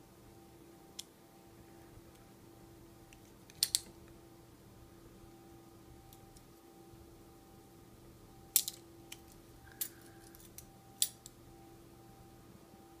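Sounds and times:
handcuff metal clicks: 3.5 - 3.9, 8.6 - 11.3.

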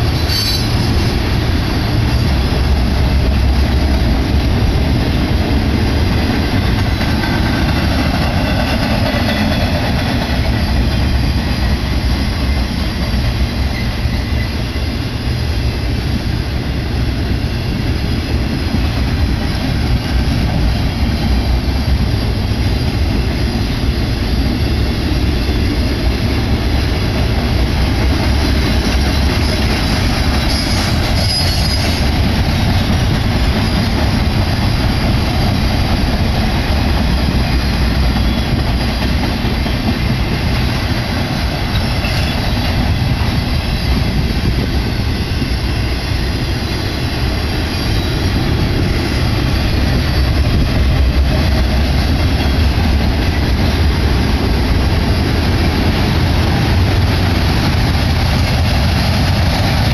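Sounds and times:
high wheel squeal: 0.0 - 2.5, 28.8 - 32.2, 41.6 - 50.7
steel wheels rumbling on rail: 0.0 - 59.9.

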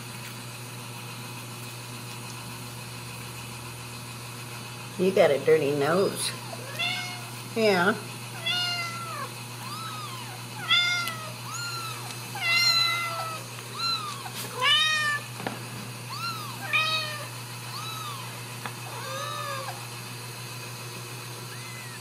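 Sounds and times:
steady low hum: 0.0 - 22.0
kittens mewing: 6.4 - 15.4, 16.0 - 20.0, 21.4 - 22.0.

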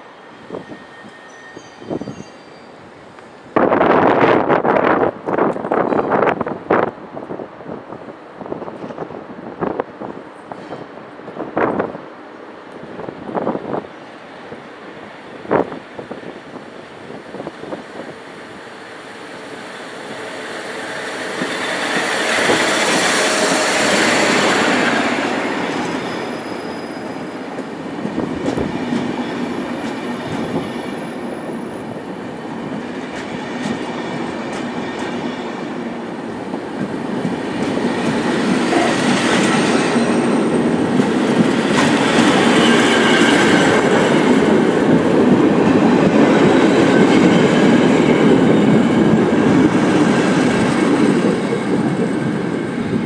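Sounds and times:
train wheels rumbling on rails: 0.0 - 53.0
faint high wheel squeal: 0.1 - 3.0, 25.6 - 27.5.

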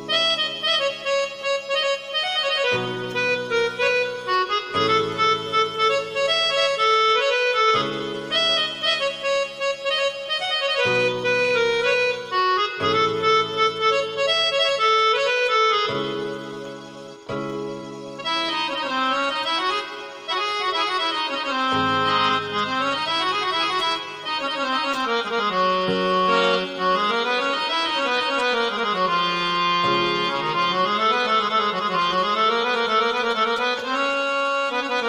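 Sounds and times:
electronic keyboard melody: 0.0 - 35.0
sustained reed tone notes: 10.9 - 29.2.

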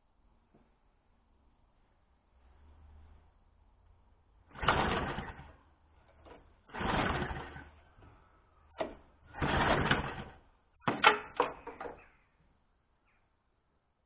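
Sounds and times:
lawn mower pull-starter whirring: 4.5 - 7.8, 8.8 - 10.4.

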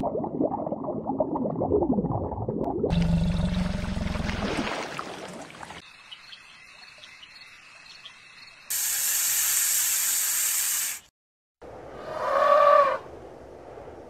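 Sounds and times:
snake hissing: 8.7 - 11.1.

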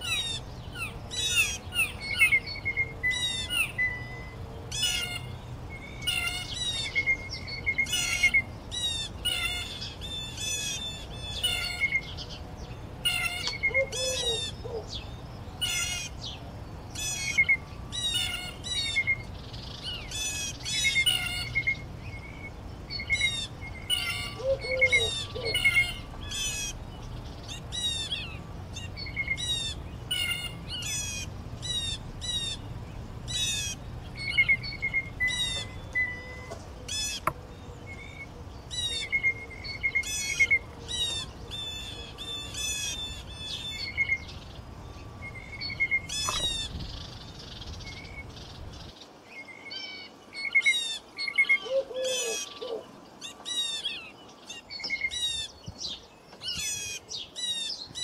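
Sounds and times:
low steady rumble: 0.0 - 48.9
songbirds singing: 0.0 - 58.0.

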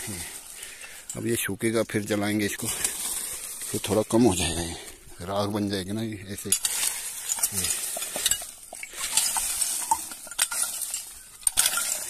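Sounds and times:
stick raking through dry rubbish: 2.2 - 5.0, 6.3 - 12.0.

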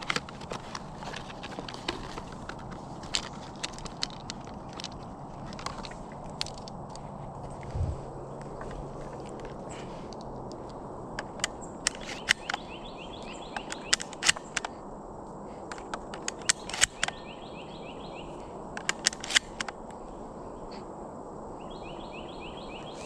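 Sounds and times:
outdoor background noise: 0.0 - 23.0
sharp clicks and snaps: 10.1 - 12.6, 13.2 - 14.7, 15.7 - 17.2, 18.8 - 19.8.

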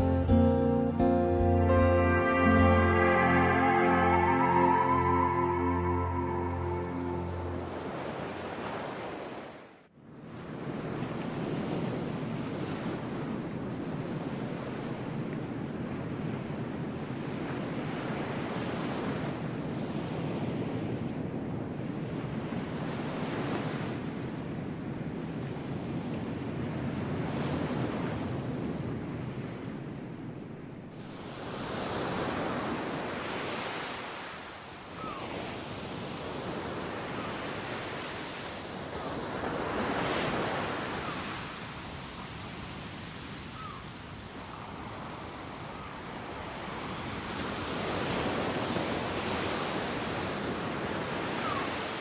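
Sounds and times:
ocean surf on sandy beach: 0.0 - 52.0.

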